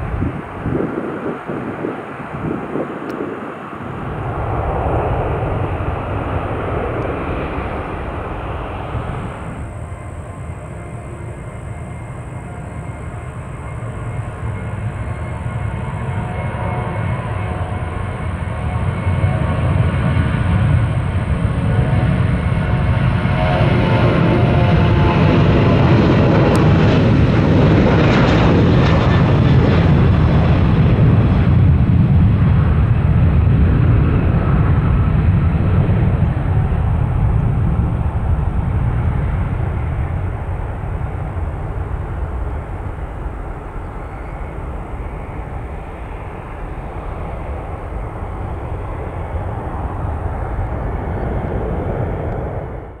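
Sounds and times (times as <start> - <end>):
jet engines rumbling: 0.0 - 53.0.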